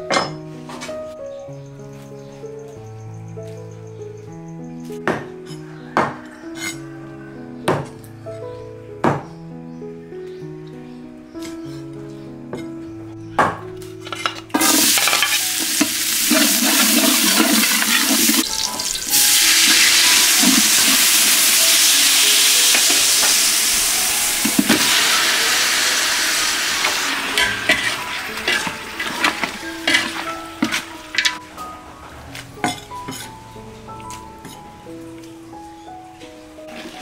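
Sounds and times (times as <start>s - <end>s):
garlic sizzling in hot oil: 14.5s - 31.4s.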